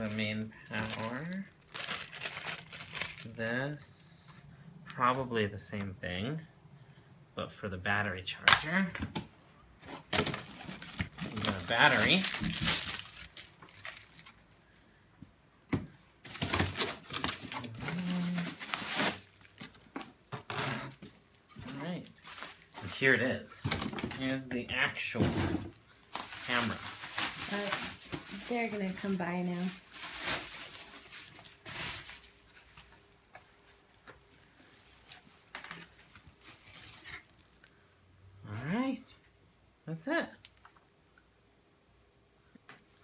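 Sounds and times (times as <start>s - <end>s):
plastic and bubble wrap rustling: 0.0s - 4.4s, 9.8s - 14.6s, 16.2s - 37.7s.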